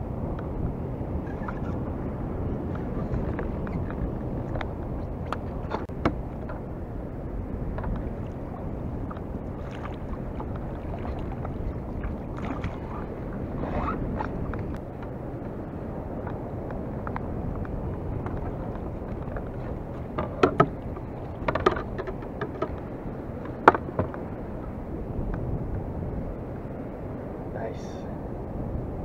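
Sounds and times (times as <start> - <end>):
wind and sea water rushing: 0.0 - 29.0
water splashing: 7.6 - 14.8
gear knocking on kayak hull: 17.0 - 24.3.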